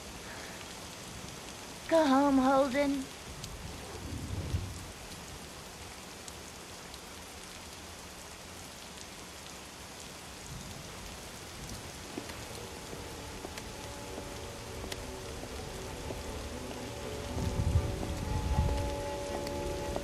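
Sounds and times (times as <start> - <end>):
steady rain falling: 0.0 - 20.0
faint musical tones: 11.6 - 20.0.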